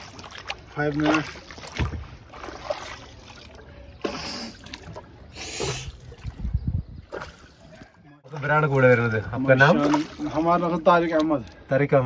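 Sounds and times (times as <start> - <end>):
paddle splashing through water: 0.0 - 11.6.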